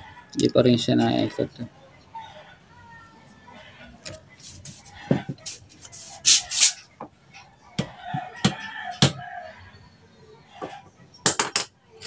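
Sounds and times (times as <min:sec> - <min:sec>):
rooster crowing: 0:07.8 - 0:09.9.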